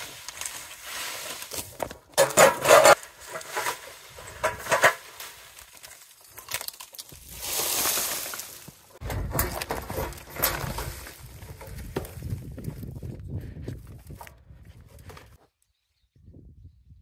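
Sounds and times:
broom sweeping dry leaves: 0.0s - 6.4s, 7.1s - 9.0s.

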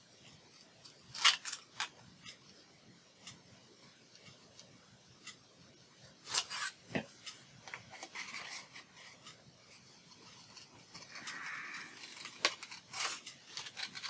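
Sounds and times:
scissors snipping paper: 10.1s - 14.0s.

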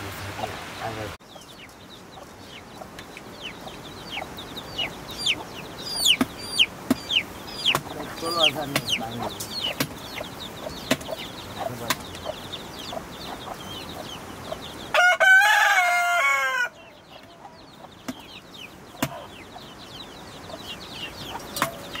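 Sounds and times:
rooster crowing: 14.9s - 17.5s.

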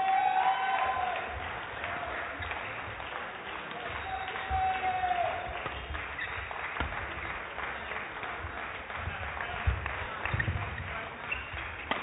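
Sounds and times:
murmur of sports hall: 0.0s - 12.0s
footsteps thudding on court: 5.5s - 7.3s.

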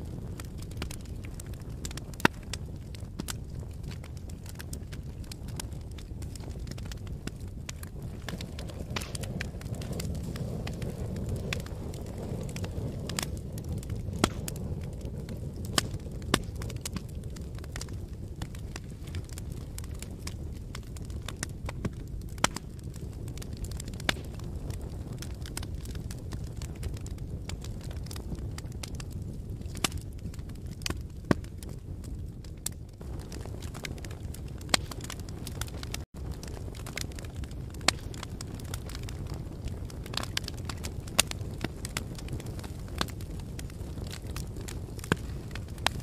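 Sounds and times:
logs crackling and popping: 0.0s - 46.0s
low rumble of flames: 0.0s - 46.0s.

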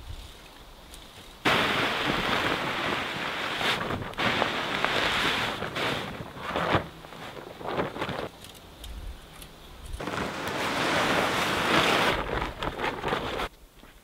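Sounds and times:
plastic tarp rustling and scraping: 1.4s - 8.4s, 10.0s - 13.5s
sand sliding: 1.4s - 8.4s, 10.0s - 13.5s.

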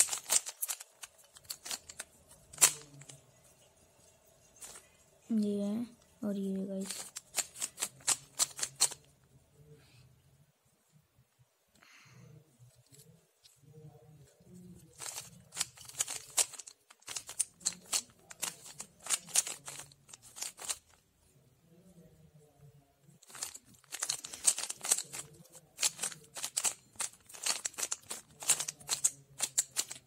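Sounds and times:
plastic puzzle cube clacking: 0.0s - 3.2s, 4.6s - 4.8s, 6.8s - 9.1s, 14.3s - 21.0s, 23.2s - 30.0s.

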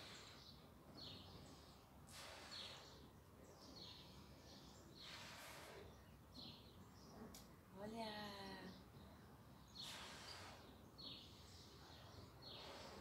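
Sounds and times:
quick breaths drawn in: 2.0s - 3.1s, 4.9s - 6.5s, 9.8s - 11.6s, 12.4s - 13.0s.

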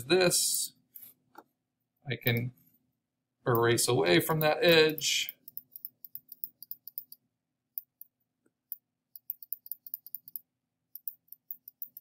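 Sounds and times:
computer mouse clicking: 4.4s - 7.2s, 8.7s - 12.0s.

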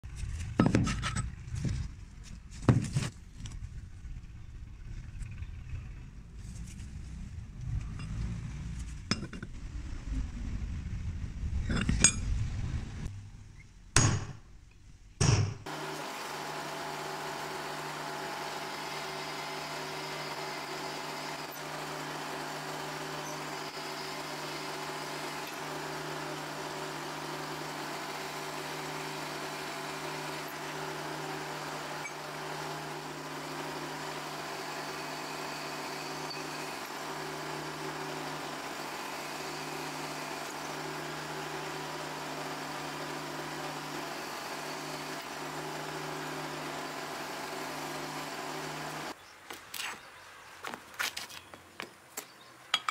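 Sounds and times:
drill press boring through steel: 15.6s - 49.2s.

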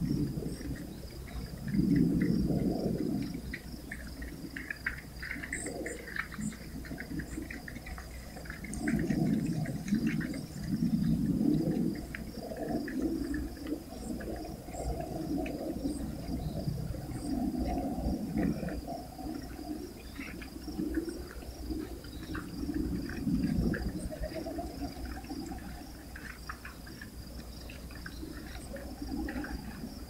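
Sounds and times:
crickets chirping: 0.0s - 30.0s.

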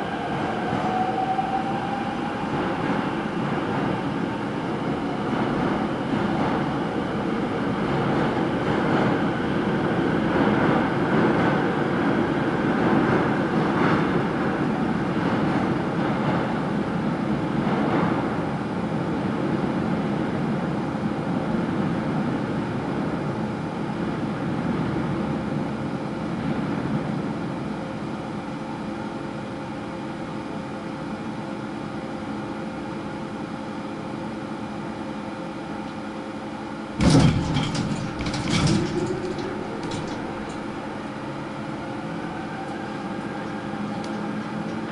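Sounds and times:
subway train equipment hum: 0.0s - 44.9s.

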